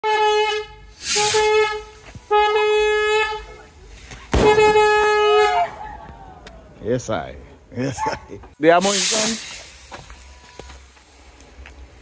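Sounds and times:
horn blasts: 0.0s - 5.8s
sharp bang: 4.3s - 4.9s.

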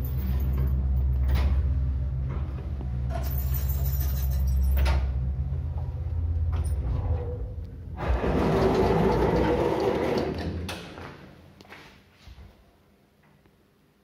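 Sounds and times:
lift car humming: 0.0s - 10.6s
sliding doors opening mechanically: 4.7s - 11.0s.

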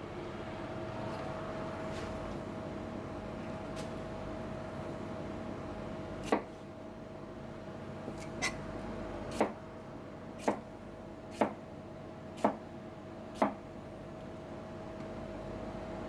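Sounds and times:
steady hum: 0.0s - 16.0s
knife chopping on cutting board: 9.3s - 9.6s, 10.4s - 10.6s, 11.3s - 11.6s, 13.4s - 13.6s.

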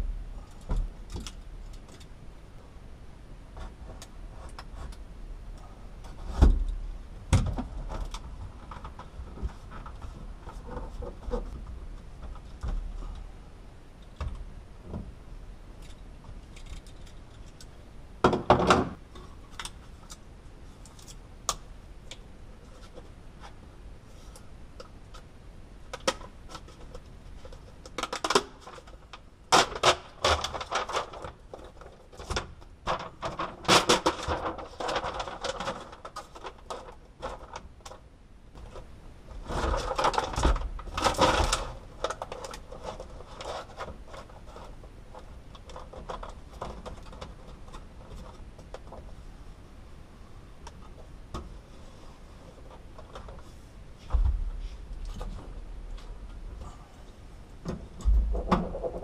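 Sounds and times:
foil sheet crinkling: 29.6s - 37.6s.

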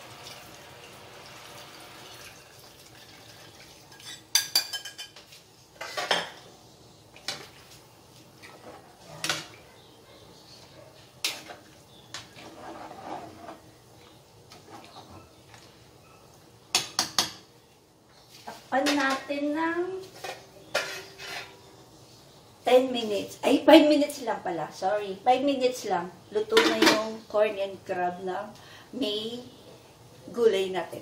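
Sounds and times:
soup pouring into pot: 0.0s - 4.2s.

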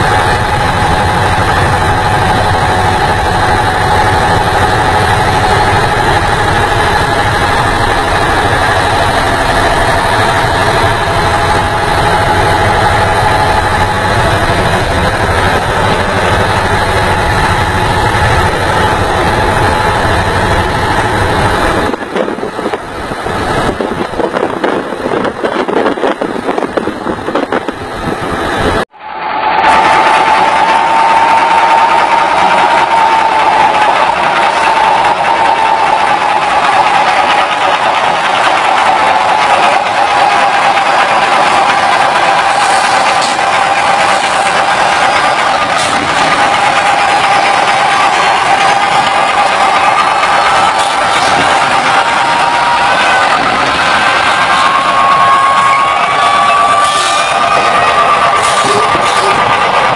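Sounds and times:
diesel truck engine droning: 31.6s - 59.9s.

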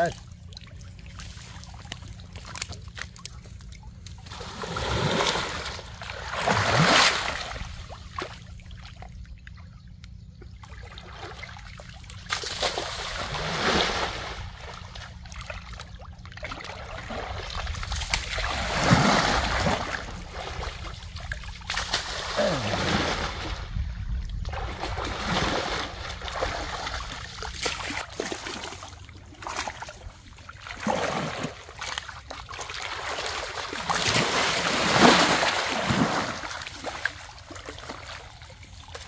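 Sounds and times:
pond water splashing and sloshing: 0.0s - 39.0s.

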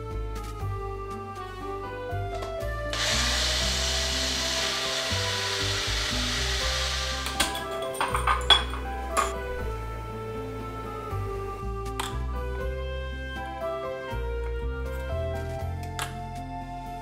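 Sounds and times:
background music: 0.0s - 17.0s
blender grinding: 2.9s - 9.2s
blender cup clinking: 3.0s - 9.4s.

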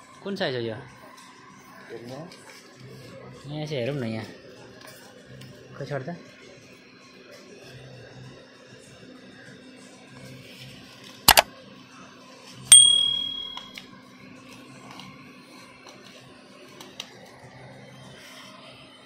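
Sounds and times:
low steady hum: 12.7s - 13.7s
metallic ding ringing: 12.7s - 13.7s.

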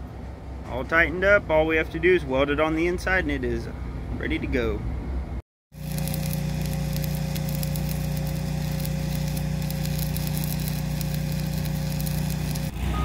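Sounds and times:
low hum: 4.9s - 13.0s
welding arc crackling: 5.7s - 12.8s.

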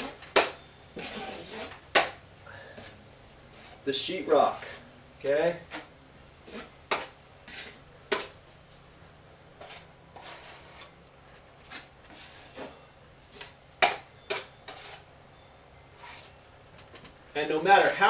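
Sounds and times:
taping knife scraping: 0.0s - 2.2s, 5.7s - 8.3s, 9.6s - 11.0s, 11.6s - 15.1s, 15.9s - 16.4s.

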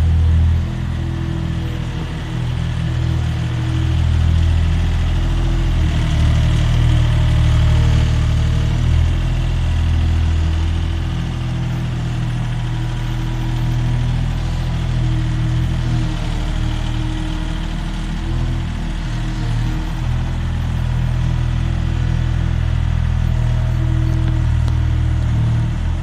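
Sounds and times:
loader engine running: 0.0s - 26.0s.

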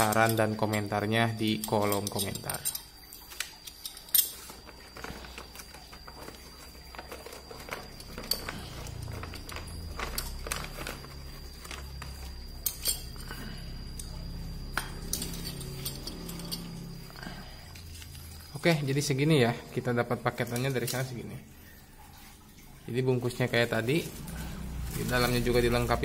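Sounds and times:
metal wheels clinking and knocking: 0.0s - 18.6s
plastic packaging rustling: 2.2s - 16.8s, 23.4s - 26.0s.

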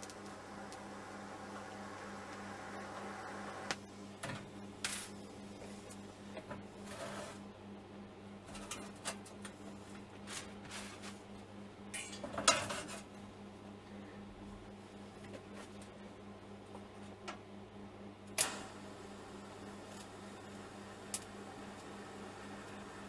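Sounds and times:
welding arc hissing: 0.0s - 3.8s, 18.4s - 23.0s.

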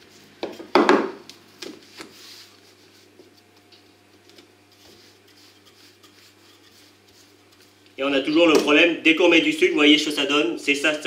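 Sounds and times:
rolling pin knocking on stone: 0.4s - 1.2s.

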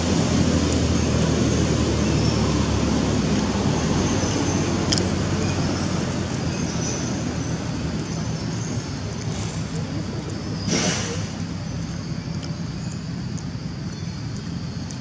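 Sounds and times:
even hiss: 7.1s - 11.8s.

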